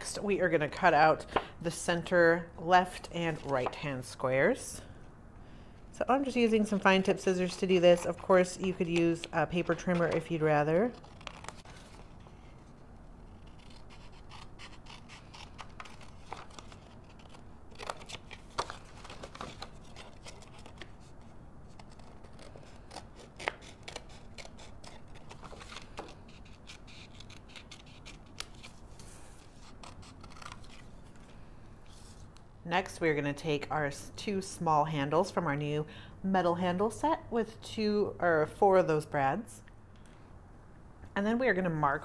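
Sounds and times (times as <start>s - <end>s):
scissors snipping paper: 13.3s - 20.9s, 21.7s - 28.7s, 29.6s - 30.8s.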